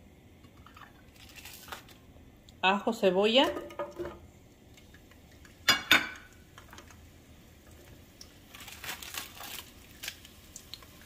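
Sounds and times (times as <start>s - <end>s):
dishware clinking: 5.7s - 6.3s
dried chiles rustling: 8.4s - 10.9s.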